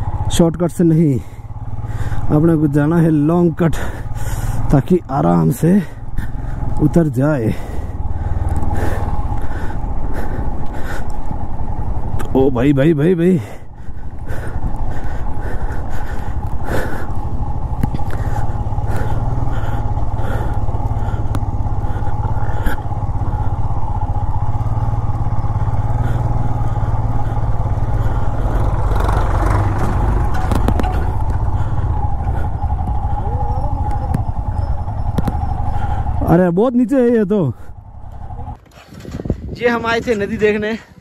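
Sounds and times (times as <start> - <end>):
motorcycle engine at low speed: 0.0 - 41.0
motorcycle knocks and rattles: 16.2 - 18.4, 28.3 - 33.1.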